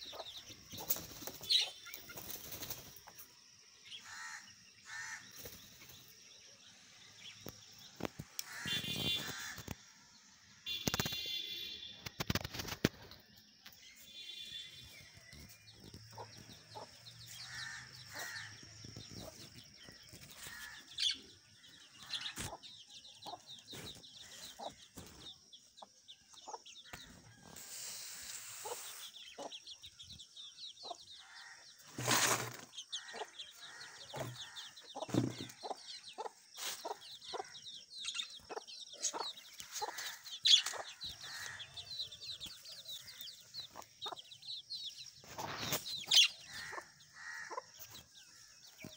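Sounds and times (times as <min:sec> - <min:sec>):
flutter of wings: 0:00.7 - 0:03.2, 0:10.7 - 0:13.4.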